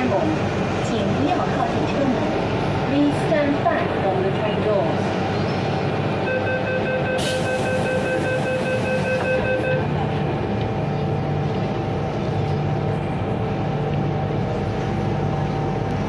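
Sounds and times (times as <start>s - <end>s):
train running noise: 0.0s - 16.0s
rapid door warning beeps: 6.3s - 9.8s.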